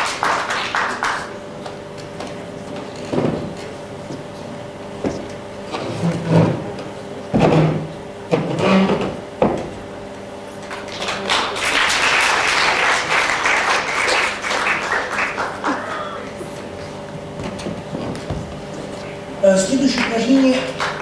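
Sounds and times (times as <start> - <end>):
audience applauding: 0.0 - 1.8, 10.6 - 16.6, 19.0 - 21.0.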